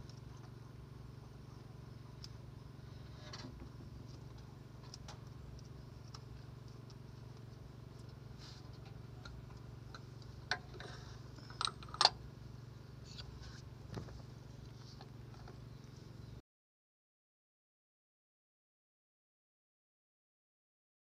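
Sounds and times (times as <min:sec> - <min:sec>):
steady low hum: 0:00.0 - 0:16.4
tools clicking and clinking: 0:10.5 - 0:12.2.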